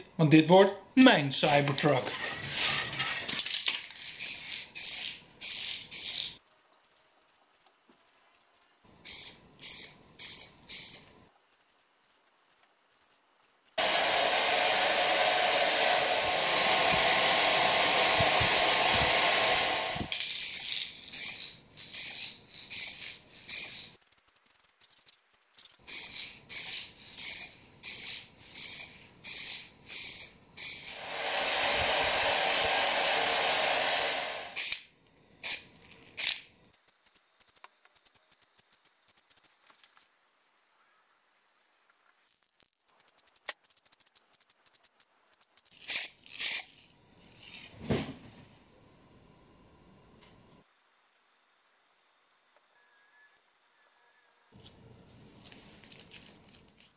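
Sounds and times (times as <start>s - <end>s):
spray paint can hissing: 3.8s - 11.8s, 17.8s - 39.6s, 42.3s - 46.9s.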